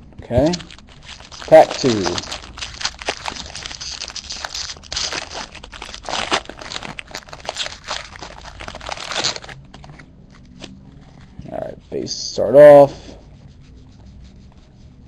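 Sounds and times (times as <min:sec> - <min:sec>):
foil wrapper tearing and crinkling: 0:00.4 - 0:10.6.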